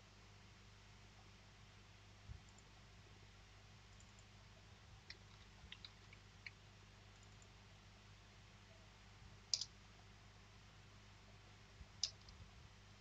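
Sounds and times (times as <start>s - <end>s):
low electrical hum: 0.0s - 13.0s
faint keyboard typing: 2.3s - 2.8s, 3.9s - 4.4s, 5.0s - 7.6s, 9.5s - 9.8s, 11.9s - 12.5s.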